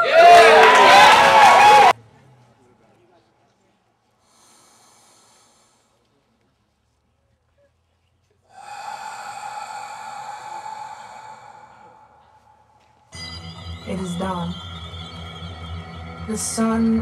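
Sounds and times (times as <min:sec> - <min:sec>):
held musical note: 0:11.6 - 0:17.0.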